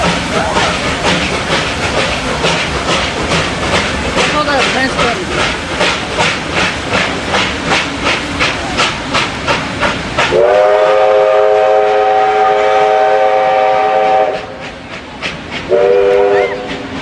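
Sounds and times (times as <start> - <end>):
steam locomotive exhaust chuffing: 0.0 - 17.0
steam chime whistle: 15.7 - 16.7.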